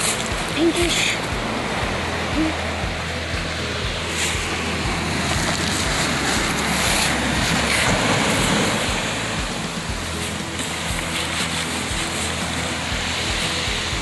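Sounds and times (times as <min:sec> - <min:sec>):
surf on pebble beach: 0:00.0 - 0:14.0
wind rumble on microphone: 0:00.0 - 0:14.0.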